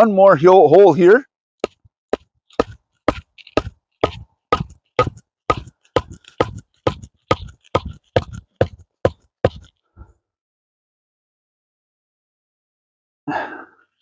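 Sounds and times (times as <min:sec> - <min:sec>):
wood block hammering wooden stick: 0:01.6 - 0:09.7.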